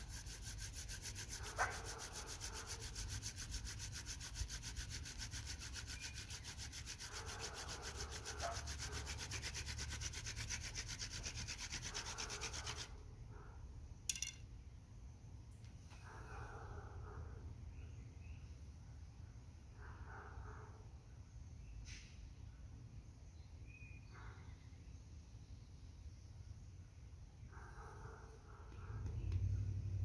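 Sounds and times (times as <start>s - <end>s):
spindle rubbing on hearth board: 0.0s - 13.0s.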